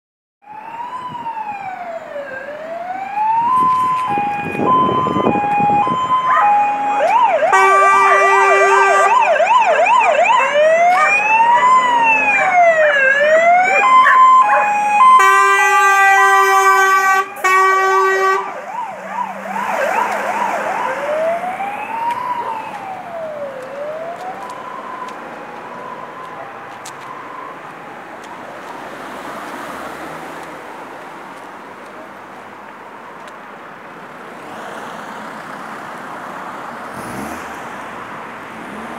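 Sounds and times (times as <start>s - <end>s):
fire engine sirens wailing: 0.4s - 29.6s
horn blasts: 6.6s - 9.2s, 15.1s - 18.5s.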